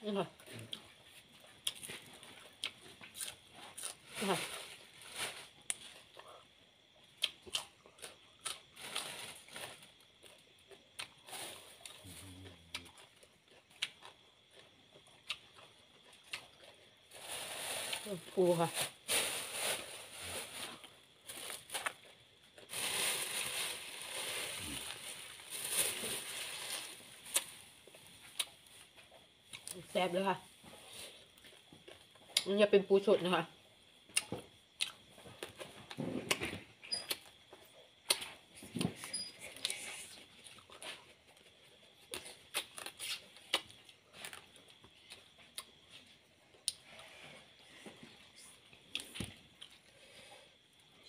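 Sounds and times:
sucking and chewing: 5.7s - 17.1s, 36.3s - 47.1s
crab shell crunching while chewing: 11.9s - 17.0s.

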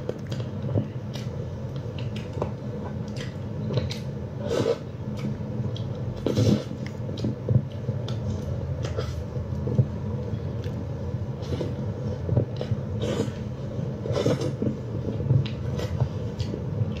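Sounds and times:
chewing with wet mouth smacks: 0.0s - 10.8s
steady low hum: 0.0s - 17.0s.

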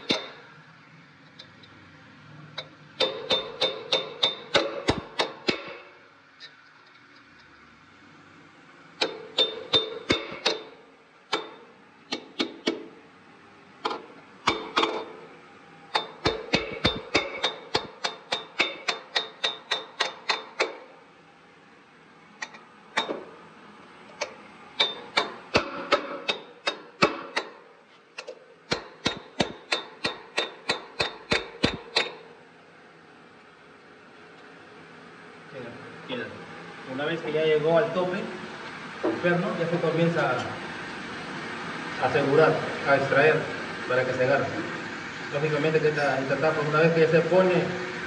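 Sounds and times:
hammer striking steel bolt: 0.0s - 0.4s, 3.0s - 5.9s, 9.0s - 10.7s, 15.9s - 20.8s, 24.2s - 27.6s, 28.2s - 32.2s.

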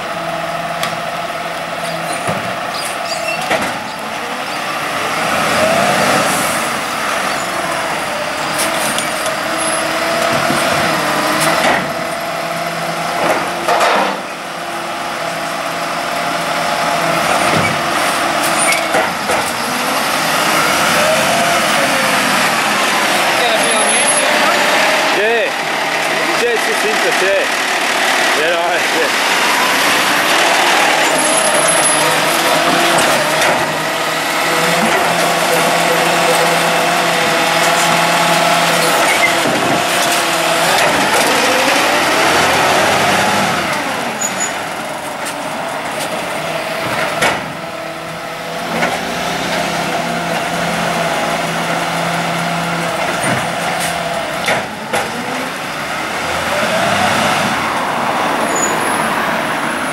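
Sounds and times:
garbage truck engine and hydraulics: 0.0s - 59.9s.

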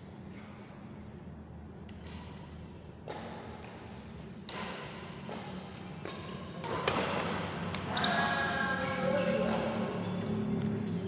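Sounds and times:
shuttlecock struck by rackets: 4.4s - 7.9s.

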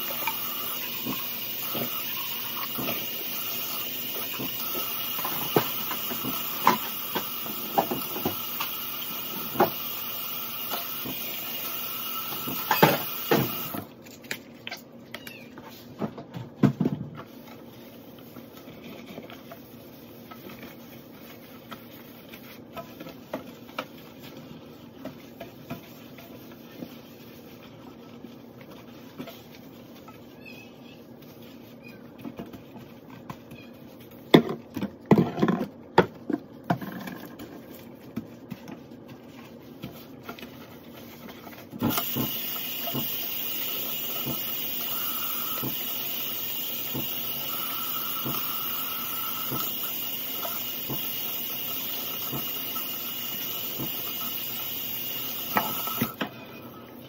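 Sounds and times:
faucet water running into sink: 0.0s - 13.9s, 41.8s - 56.2s.

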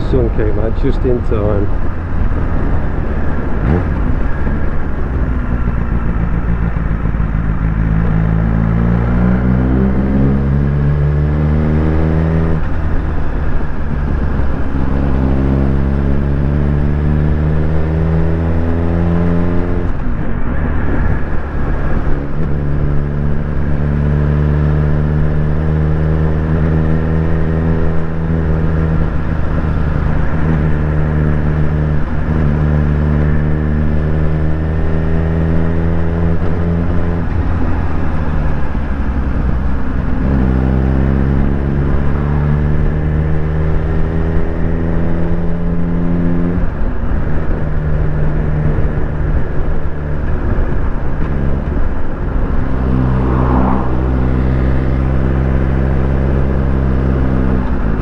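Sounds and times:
wind and road noise: 0.0s - 58.0s
motorcycle engine under way: 21.5s - 58.0s.

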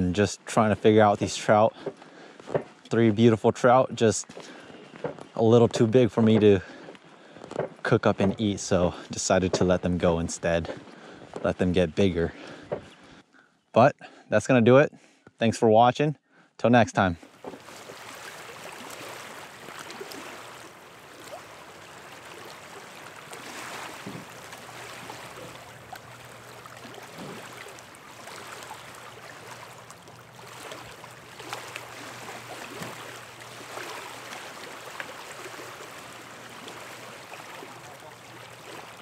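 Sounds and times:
small waves lapping: 4.2s - 11.4s, 17.2s - 39.0s.

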